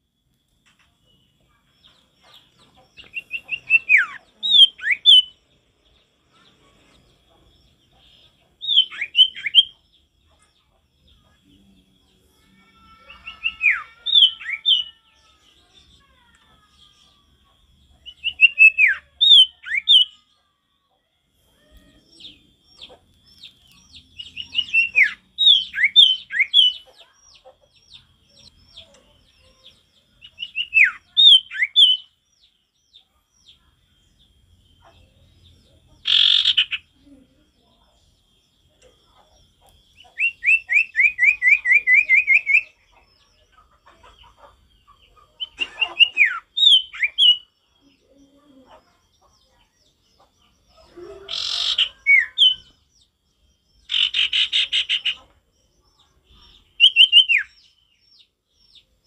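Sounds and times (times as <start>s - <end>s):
bird singing whistled notes: 3.0s - 5.4s, 8.6s - 9.8s, 23.6s - 26.8s, 30.2s - 32.2s, 39.9s - 42.9s, 46.2s - 47.6s, 51.3s - 52.8s, 56.7s - 58.3s.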